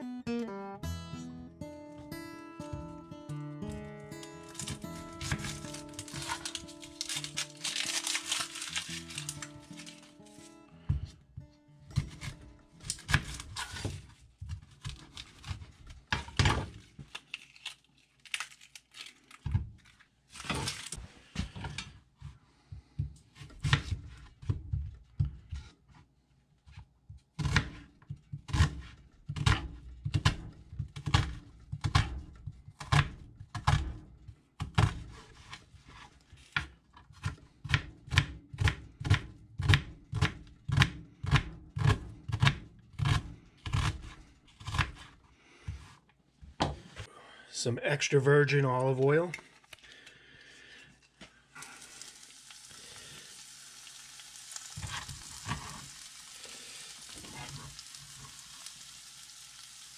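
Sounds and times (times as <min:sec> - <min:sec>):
knife chopping onion on wooden board: 0:11.9 - 0:16.7, 0:27.4 - 0:34.0, 0:34.6 - 0:35.6, 0:36.6 - 0:45.1.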